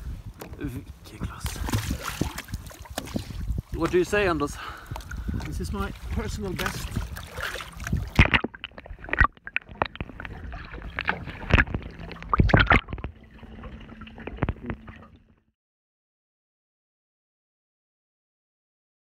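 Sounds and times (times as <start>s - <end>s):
water splashing: 1.3s - 15.4s
sharp knocks underwater: 1.4s - 4.0s, 6.1s - 15.2s
underwater gurgles and bubbles: 1.4s - 15.4s.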